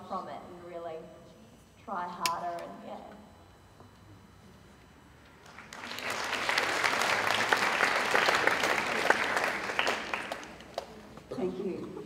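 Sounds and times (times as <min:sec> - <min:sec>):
audience applauding: 0:05.4 - 0:11.2.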